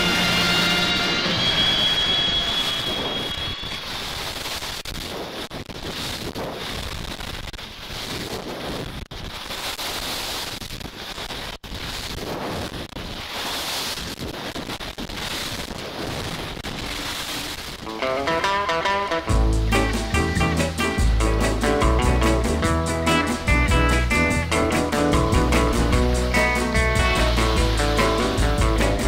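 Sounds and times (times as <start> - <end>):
wind buffeting a microphone: 5.0 - 9.5.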